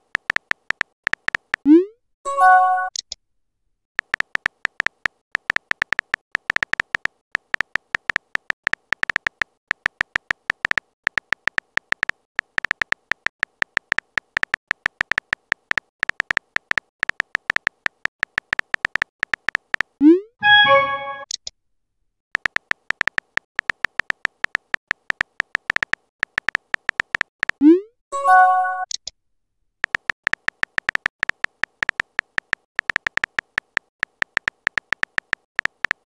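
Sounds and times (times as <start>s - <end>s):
phone keyboard typing clicks: 0.0s - 1.6s, 4.0s - 21.4s, 22.4s - 27.6s, 29.8s - 36.0s
chiming message tone: 2.3s - 2.9s, 20.4s - 21.3s, 28.2s - 28.9s.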